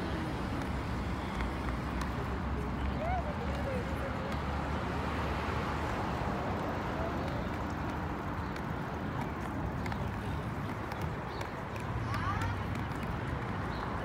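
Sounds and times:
road traffic: 0:00.0 - 0:14.0.

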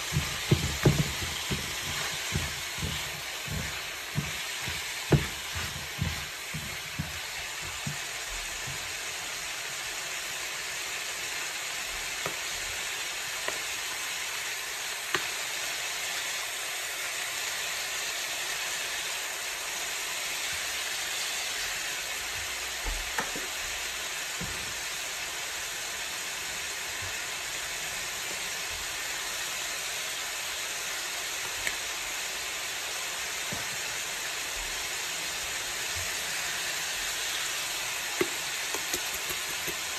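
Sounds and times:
wooden spatula knocking a pan: 0:00.0 - 0:09.0, 0:38.2 - 0:39.9
vegetables and meat sizzling in a skillet: 0:00.0 - 0:39.9.

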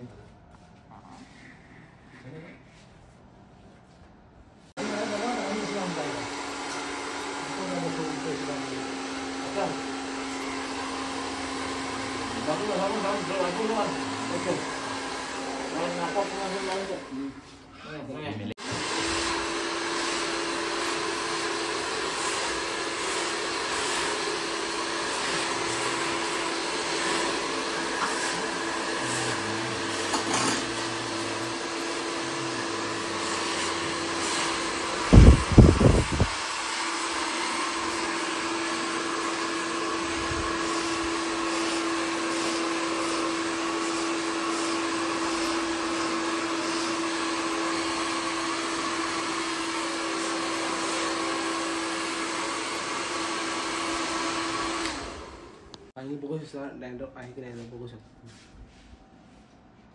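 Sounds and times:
hair dryer blowing: 0:04.7 - 0:17.5, 0:18.6 - 0:56.0.

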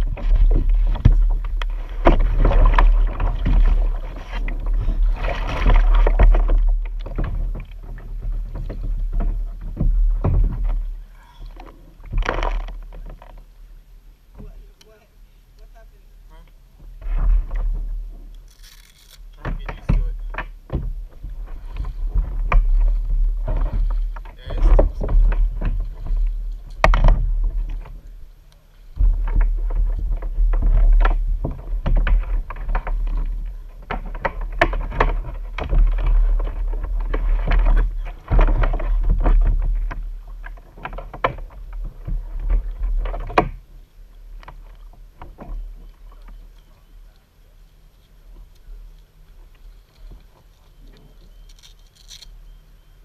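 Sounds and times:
paddle splashing through water: 0:00.0 - 0:13.4, 0:20.9 - 0:46.5
heavy low rumble: 0:00.0 - 0:40.5.

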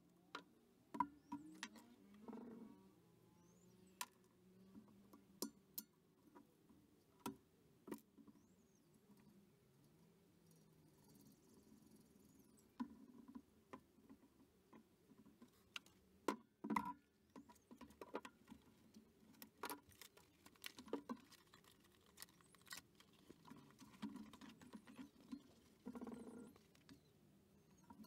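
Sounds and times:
packaging rustling and clicking: 0:19.4 - 0:25.4.

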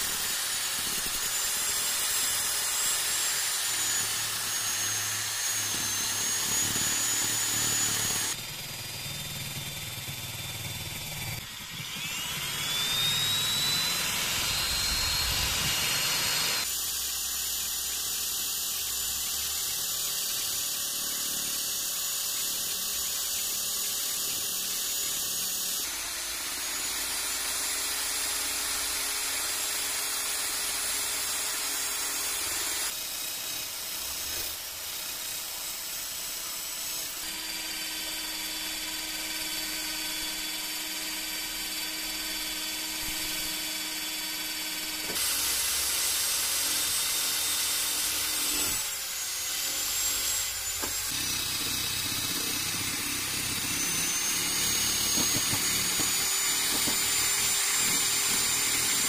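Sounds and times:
power drill wire brush scrubbing metal: 0:00.0 - 0:08.4, 0:44.4 - 0:59.0.

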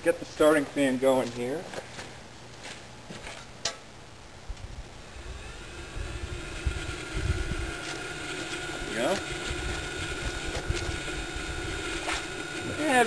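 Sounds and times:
fan spinning up with whine: 0:04.5 - 0:13.0.

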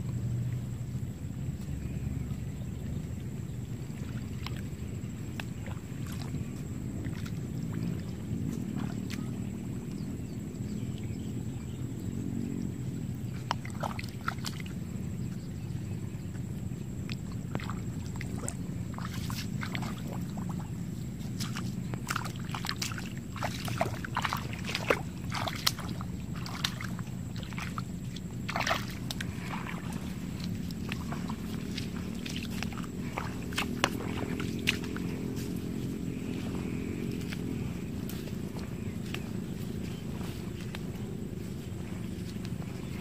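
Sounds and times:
steady low rumble: 0:00.0 - 0:43.0
water sloshing and splashing: 0:00.0 - 0:43.0.

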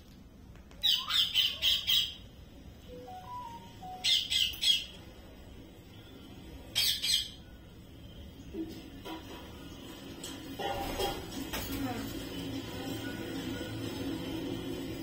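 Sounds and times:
parakeets squawking: 0:00.8 - 0:02.3, 0:04.0 - 0:05.0, 0:06.7 - 0:07.4.

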